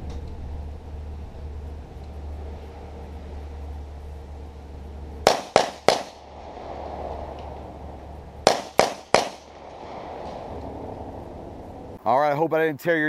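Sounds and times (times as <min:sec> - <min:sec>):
pistol shots echoing: 0:05.2 - 0:06.9, 0:08.4 - 0:10.5.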